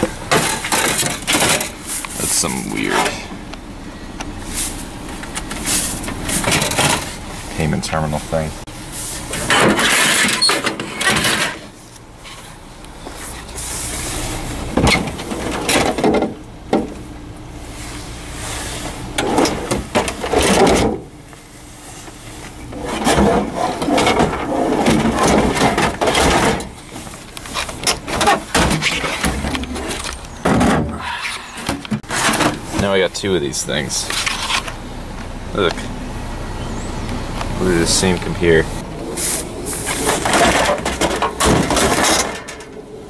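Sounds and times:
metal junk scraping and rattling: 0:00.0 - 0:03.4, 0:04.5 - 0:07.7, 0:08.9 - 0:12.5, 0:13.2 - 0:16.9, 0:18.5 - 0:21.2, 0:21.8 - 0:33.0, 0:38.0 - 0:43.0.

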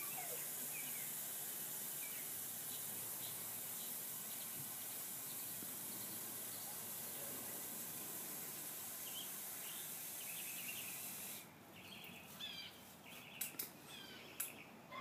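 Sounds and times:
small birds chirping: 0:00.0 - 0:07.8, 0:09.0 - 0:15.0
steady high hiss: 0:00.0 - 0:14.6
sharp clicks: 0:13.4 - 0:13.8.

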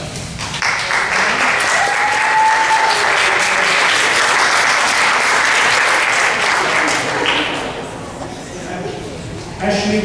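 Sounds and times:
audience applauding: 0:00.4 - 0:08.1.

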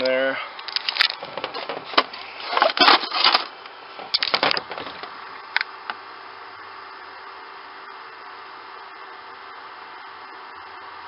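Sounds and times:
plastic and packaging knocks and rustles: 0:01.2 - 0:05.1
steady hiss: 0:01.7 - 0:11.0.

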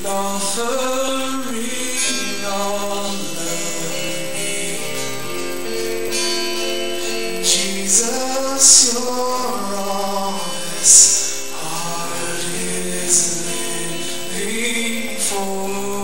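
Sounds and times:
acoustic guitar: 0:00.0 - 0:16.0
voices singing: 0:00.0 - 0:16.0.

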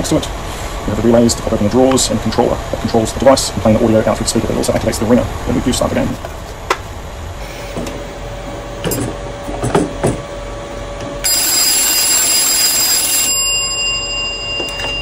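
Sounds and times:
telephone bells ringing: 0:11.2 - 0:15.0.

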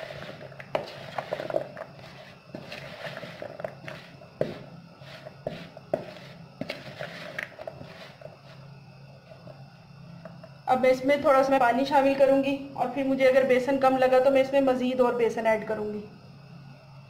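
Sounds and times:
spoon scraping and knocking plastic bowl: 0:00.0 - 0:08.6.

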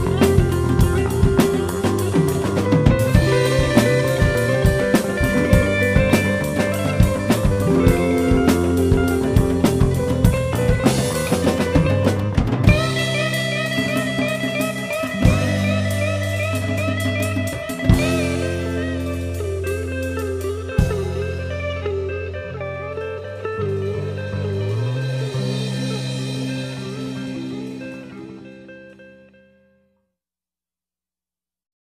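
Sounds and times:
drum kit: 0:00.0 - 0:28.5
electric guitar: 0:00.0 - 0:29.9.

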